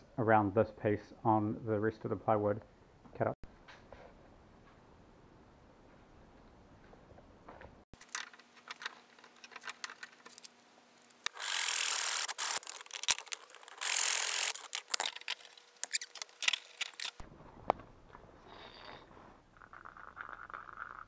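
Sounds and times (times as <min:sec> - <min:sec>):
handsaw cutting wood: 0:11.3 - 0:12.7, 0:13.7 - 0:14.9.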